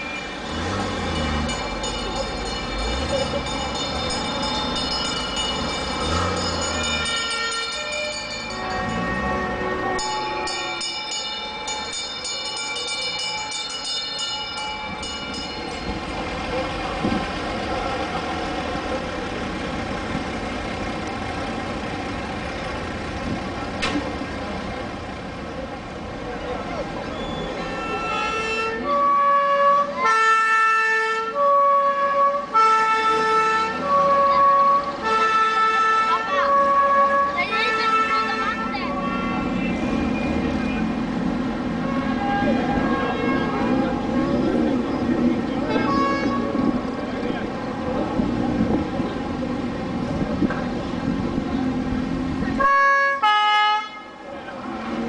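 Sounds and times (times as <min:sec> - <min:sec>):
bells ringing: 0:00.0 - 0:17.0
passing vehicles rumble: 0:00.0 - 0:55.0
fire engine two-tone siren: 0:06.1 - 0:11.2, 0:27.2 - 0:40.8, 0:52.6 - 0:54.3.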